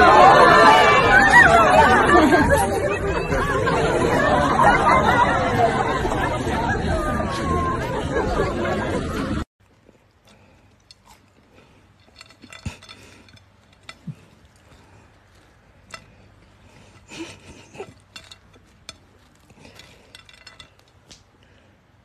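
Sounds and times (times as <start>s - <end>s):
soft rustle: 9.6s - 21.7s
plate clicking and clinking: 12.0s - 14.4s, 15.9s - 21.2s.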